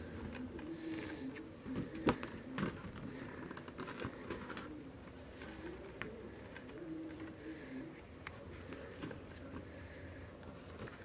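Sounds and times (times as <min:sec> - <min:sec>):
calendar pages rustling: 0:00.0 - 0:07.4.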